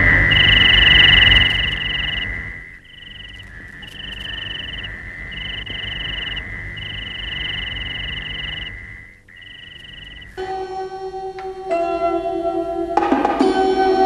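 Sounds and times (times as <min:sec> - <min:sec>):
high-pitched insect drone: 0:00.0 - 0:14.0.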